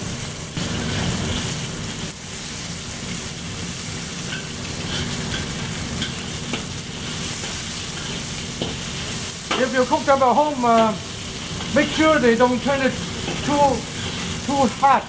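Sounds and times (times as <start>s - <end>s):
chicken sizzling in hot oil: 0.0s - 15.0s
metal spatula scraping a wok: 4.2s - 9.4s, 13.0s - 14.5s.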